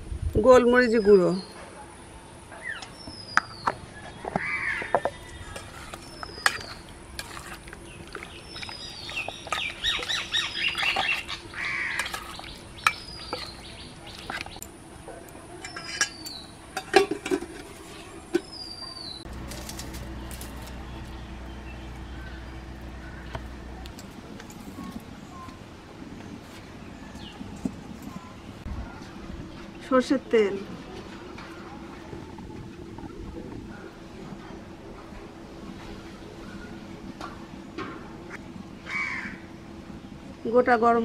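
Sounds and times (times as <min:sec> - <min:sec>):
bird chirping: 0:07.8 - 0:14.6, 0:20.0 - 0:24.0.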